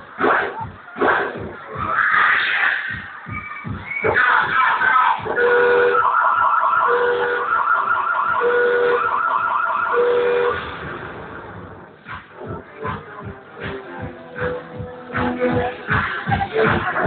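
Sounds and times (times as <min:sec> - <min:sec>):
warbling siren: 0:04.1 - 0:10.8.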